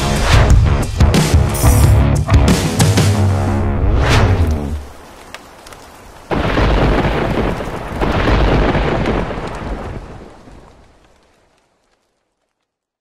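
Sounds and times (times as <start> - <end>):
rain hissing: 3.2 - 12.4
thunderclap: 3.8 - 11.4
rolling thunder peal: 5.9 - 11.1.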